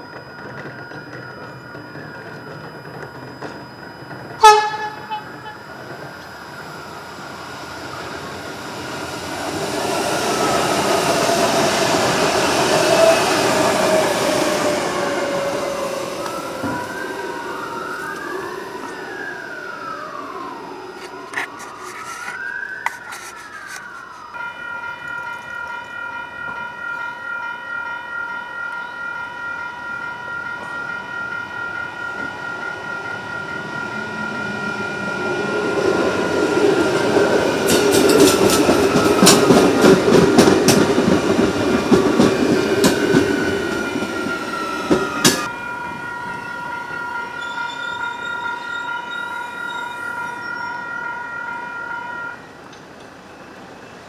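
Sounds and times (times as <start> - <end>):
level crossing alarm ringing: 0.0 - 52.6
wheels clicking over rail joints: 36.5 - 47.0.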